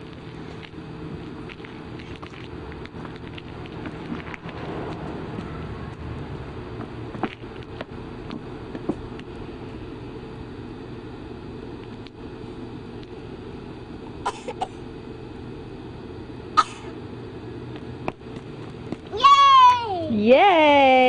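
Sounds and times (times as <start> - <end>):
person coughing: 16.6 - 16.9.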